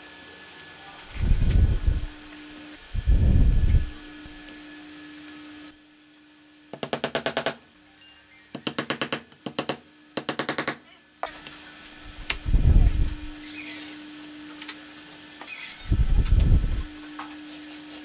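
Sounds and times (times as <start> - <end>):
hammer driving a nail into wood: 8.6 - 10.8.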